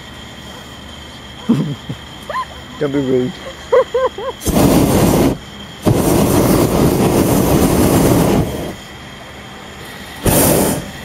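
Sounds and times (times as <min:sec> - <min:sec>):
propane burner blast: 0:04.3 - 0:11.0.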